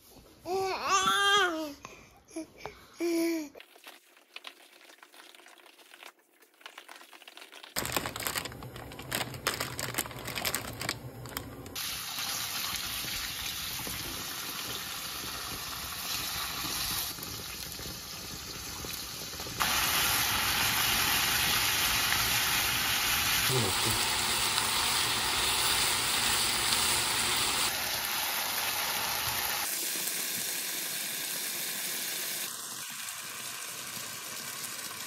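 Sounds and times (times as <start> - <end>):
kitchen clattering and handling: 7.8 - 11.8
steady cooking hiss: 11.7 - 35.0.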